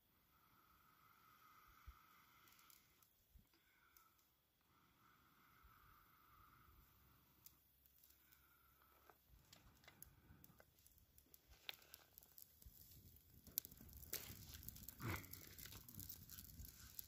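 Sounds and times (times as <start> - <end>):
dry tinder crackling: 1.9 - 4.2, 7.2 - 17.0.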